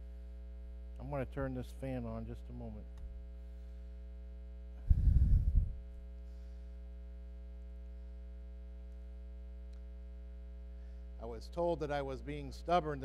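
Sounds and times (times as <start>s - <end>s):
mains hum: 0.0s - 13.0s
fan switching on rumble: 4.8s - 5.9s.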